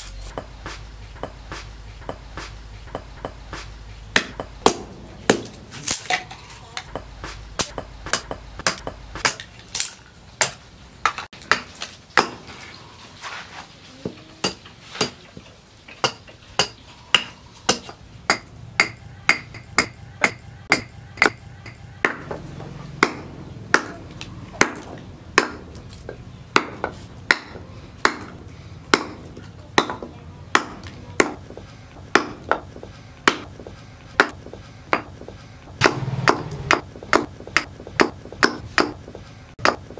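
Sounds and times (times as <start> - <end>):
knife chopping wood on a board: 0.0 - 6.3, 6.9 - 12.5, 22.0 - 24.0, 24.6 - 35.2, 35.8 - 39.0.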